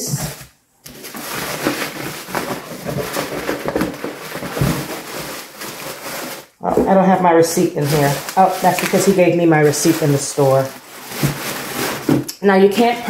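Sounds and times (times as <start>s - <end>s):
packaging rustling and crinkling: 0.0s - 12.3s.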